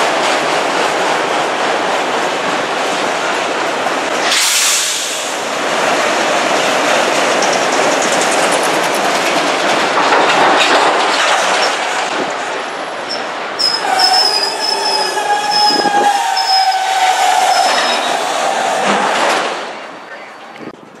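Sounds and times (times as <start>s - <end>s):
freight train wheels clacking: 4.8s - 12.4s
high wheel squeals: 13.1s - 19.1s.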